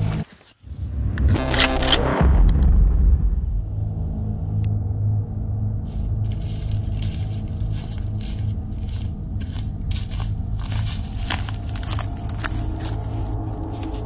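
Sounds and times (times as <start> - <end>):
footsteps crunching dry leaves: 5.9 - 14.0.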